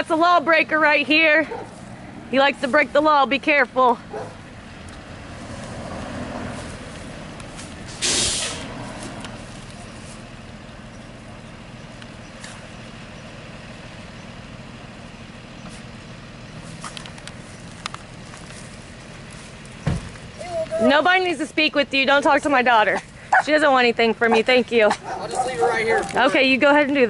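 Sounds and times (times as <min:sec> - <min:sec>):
engine hum: 0:00.0 - 0:27.0
traffic noise: 0:00.0 - 0:27.0
air brakes hissing: 0:07.9 - 0:08.8.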